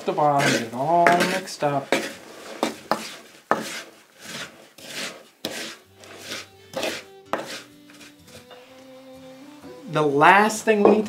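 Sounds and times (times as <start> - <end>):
wooden spoon scraping bowl: 0.0 - 8.9.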